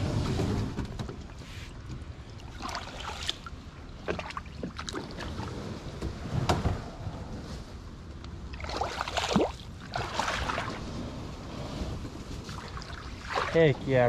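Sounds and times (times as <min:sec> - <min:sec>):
paddle blade dipping in water: 0:01.5 - 0:05.5, 0:08.5 - 0:10.9, 0:12.4 - 0:13.6
feet wading in shallow water: 0:02.3 - 0:05.5, 0:08.5 - 0:10.9, 0:12.5 - 0:13.7.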